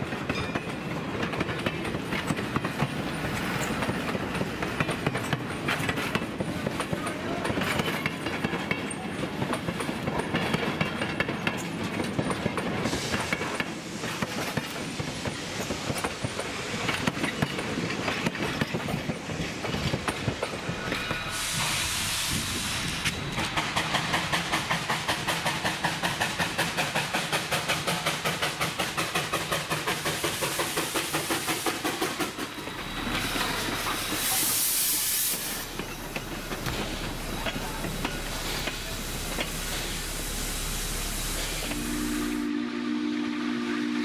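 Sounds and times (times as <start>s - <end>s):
steam hiss: 11.4s - 44.0s
steam locomotive exhaust chuffs: 19.7s - 44.0s.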